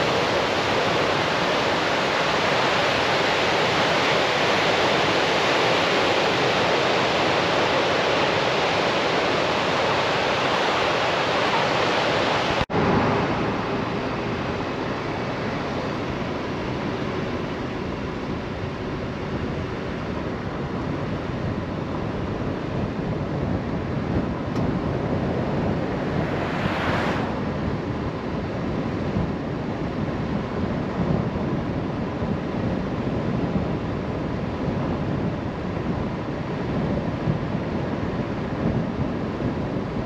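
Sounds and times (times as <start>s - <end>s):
surf on the shore: 0.0s - 40.0s
wind noise on microphone: 0.0s - 40.0s
wave breaking: 24.4s - 28.4s.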